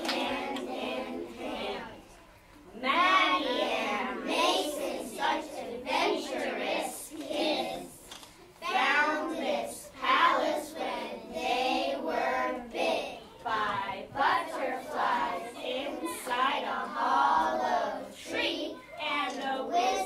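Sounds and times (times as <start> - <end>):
children singing in unison: 0.0 - 2.2, 2.8 - 20.0.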